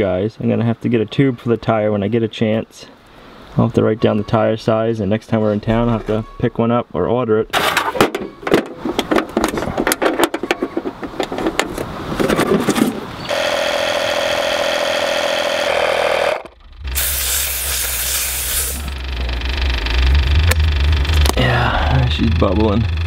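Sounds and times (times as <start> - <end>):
air compressor humming: 13.2 - 23.0
air hissing into tire: 16.9 - 19.0.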